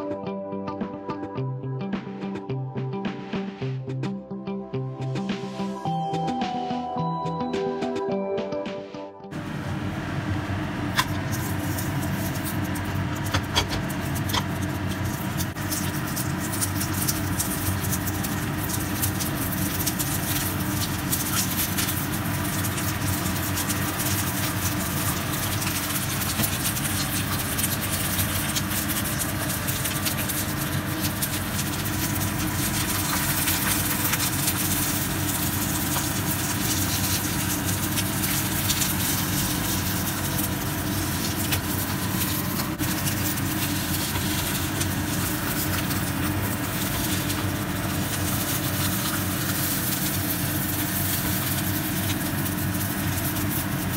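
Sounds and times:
kitchen fan humming: 9.3 - 53.9
food crackling in a frying pan: 10.4 - 53.9.

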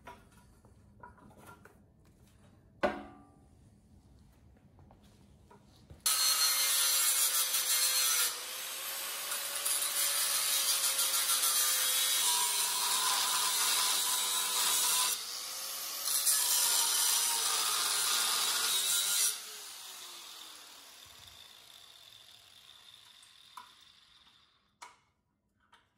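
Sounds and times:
angle grinder cutting steel: 6.1 - 24.7.

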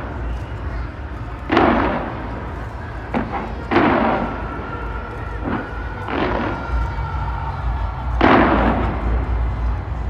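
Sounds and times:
continuous low rumble: 0.0 - 10.0
fireworks booming: 0.0 - 10.0.

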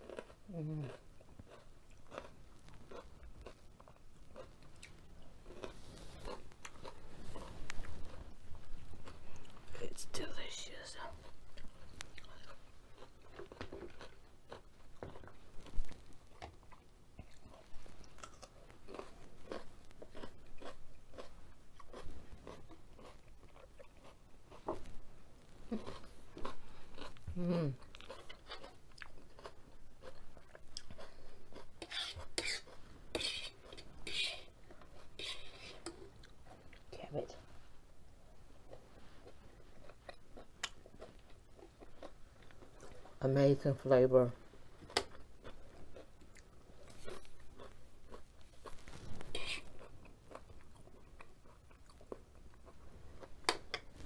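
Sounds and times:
appreciative mmm: 0.0 - 2.3, 9.0 - 14.6, 25.7 - 37.4, 49.2 - 52.2
person chewing food: 0.0 - 9.9, 10.9 - 37.0, 38.2 - 43.2, 44.4 - 54.0.

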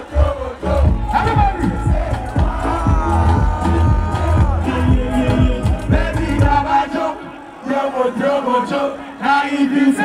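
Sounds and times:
men chanting and singing: 0.0 - 10.0
backing beat: 0.1 - 7.0.

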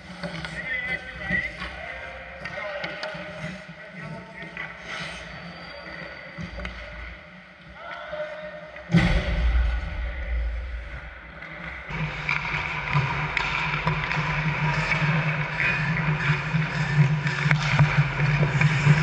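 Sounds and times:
loud knock: 8.9 - 11.2
low rumbling: 8.9 - 12.1.

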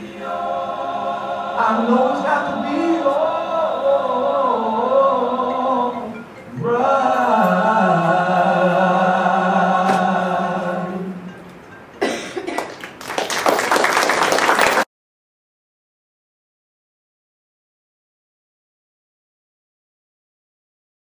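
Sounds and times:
voices singing held chord: 0.0 - 12.5
audience applause: 12.5 - 14.9.

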